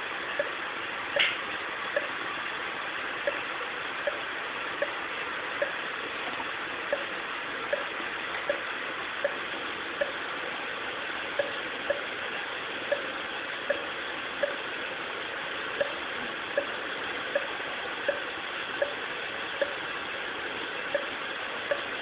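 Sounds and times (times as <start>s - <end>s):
steady hiss: 0.0s - 22.0s
heart monitor beeping: 15.8s - 16.0s, 16.6s - 19.0s, 19.6s - 19.8s, 20.9s - 21.9s.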